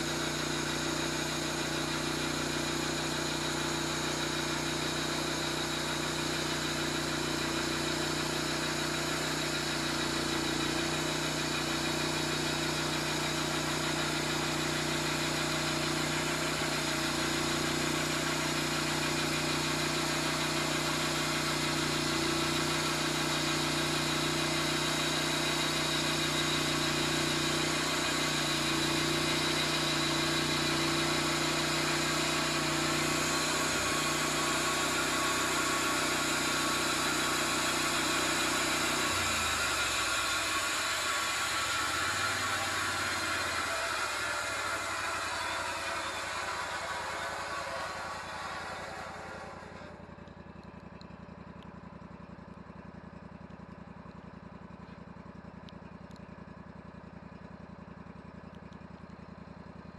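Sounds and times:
sawmill engine drone: 0:00.0 - 0:59.9
band saw blade hissing: 0:21.2 - 0:50.0.

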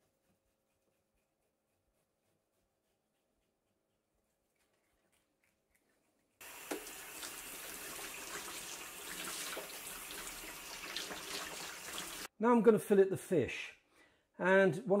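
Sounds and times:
tap water splashing into bowl: 0:06.4 - 0:12.1.

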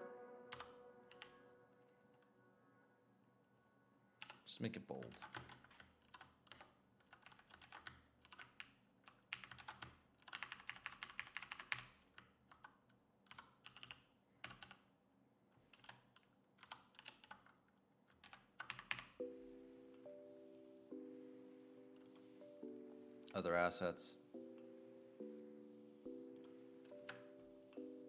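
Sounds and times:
steady chord of tones: 0:00.0 - 0:04.2, 0:19.2 - 0:28.0
keyboard typing: 0:00.5 - 0:01.4, 0:04.2 - 0:14.9, 0:15.7 - 0:23.5, 0:24.3 - 0:28.0.

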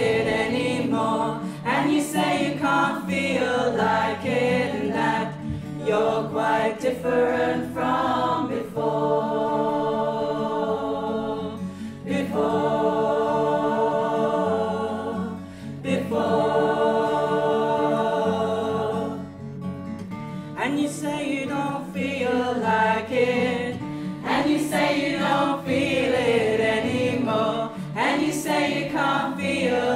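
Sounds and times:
choir singing: 0:00.0 - 0:19.4, 0:20.6 - 0:29.9
acoustic guitar: 0:00.0 - 0:29.9.

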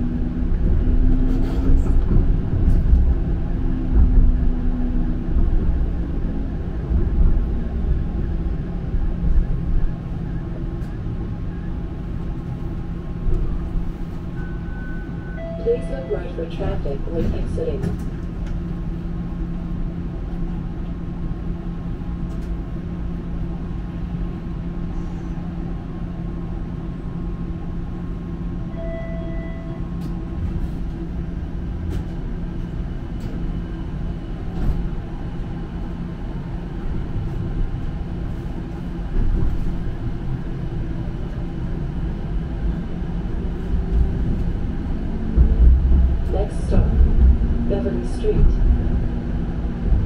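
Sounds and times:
streetcar rumbling on rails: 0:00.0 - 0:50.0
faint beep: 0:28.7 - 0:29.8.

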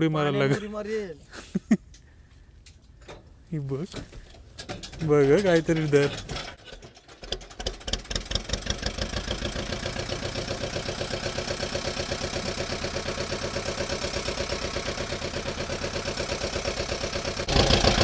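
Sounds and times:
boat diesel engine idling: 0:07.6 - 0:18.0.

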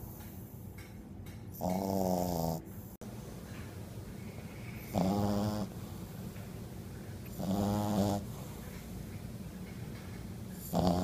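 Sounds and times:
puppy snoring: 0:01.5 - 0:03.0, 0:04.4 - 0:06.2, 0:07.2 - 0:09.0, 0:10.5 - 0:11.0.

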